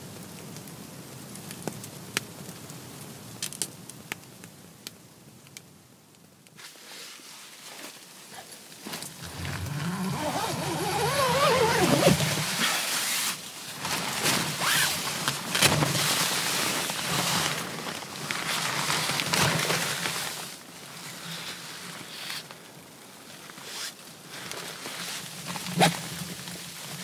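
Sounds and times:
tent fabric rustling: 6.6 - 22.5, 23.3 - 27.0.

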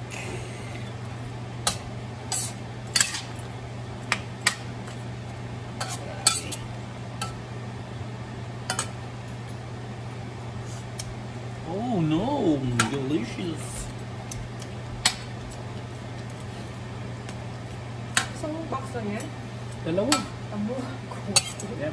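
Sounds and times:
metal spoon scraping pan: 21.3 - 21.7.

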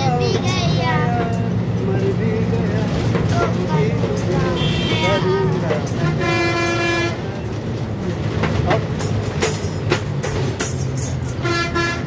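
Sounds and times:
bus engine rumbling: 0.0 - 12.0
bus rattling: 0.0 - 12.0
bus horn honking: 4.4 - 7.4, 11.3 - 12.0.

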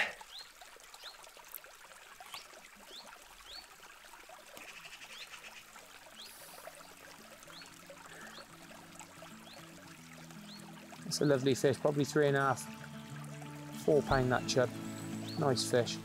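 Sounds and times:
flowing river water: 0.0 - 16.0
bird chirping: 14.3 - 16.0.

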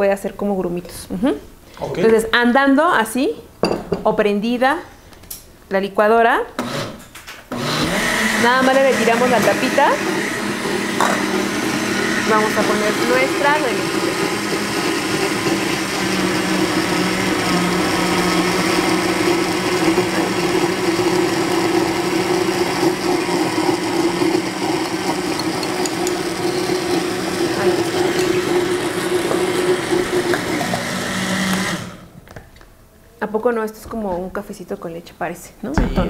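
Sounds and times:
blender running: 6.6 - 32.1.

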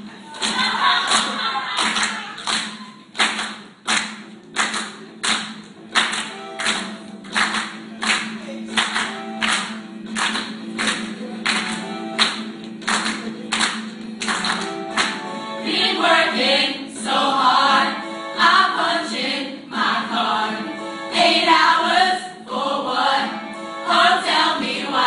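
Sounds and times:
group clapping a beat: 0.0 - 17.8, 23.9 - 25.0.

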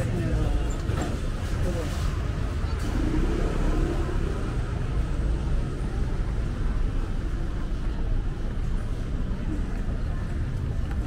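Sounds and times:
faint voices: 0.0 - 11.0.

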